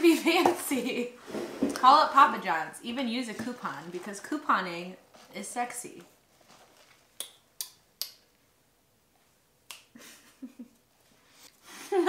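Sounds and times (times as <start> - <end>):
mouth clicks: 7.2 - 8.2.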